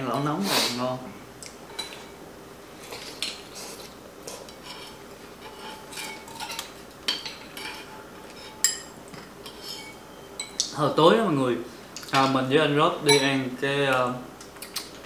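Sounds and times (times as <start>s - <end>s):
utensils clinking on ceramic bowls: 13.0s - 13.4s.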